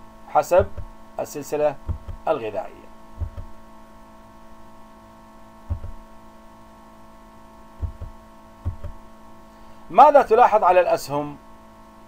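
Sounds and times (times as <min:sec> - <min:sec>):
steady electrical hum: 0:00.0 - 0:12.0
soft low thumps: 0:00.6 - 0:01.0, 0:01.8 - 0:02.3, 0:03.2 - 0:03.6, 0:05.6 - 0:06.1, 0:07.8 - 0:09.1.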